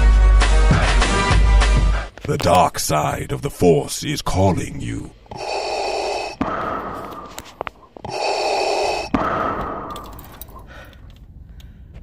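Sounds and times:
respirator hissing breaths: 0:05.0 - 0:11.0.

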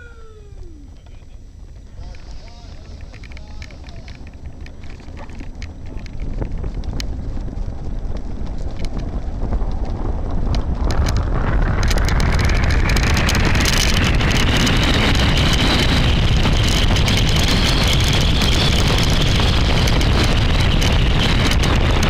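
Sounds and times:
wind rushing over microphone: 0:00.0 - 0:22.0
cart wheels rolling on tarmac: 0:00.6 - 0:22.0
clicks and rattles: 0:02.8 - 0:07.1.

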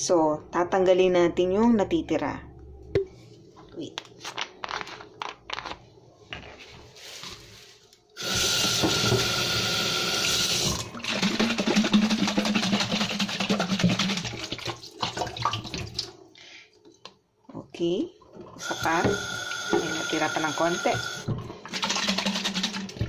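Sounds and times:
tap water running into steel sink: 0:08.2 - 0:12.2, 0:18.6 - 0:20.2
water splashing inside plastic bottle: 0:10.8 - 0:16.1.

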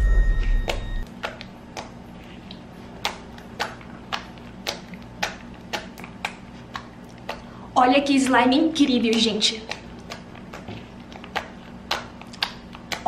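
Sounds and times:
fingers clicking in slime: 0:03.0 - 0:07.5, 0:08.8 - 0:13.0.

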